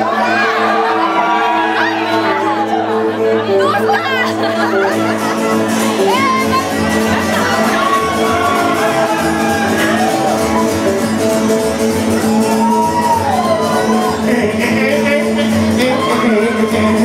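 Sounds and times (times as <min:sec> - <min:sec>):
live rockabilly band playing: 0:00.0 - 0:17.0.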